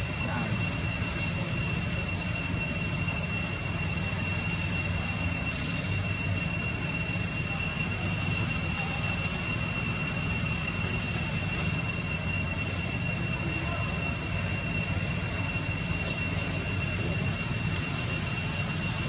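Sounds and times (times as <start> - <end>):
constant high-pitched whine: 0.0 - 19.0.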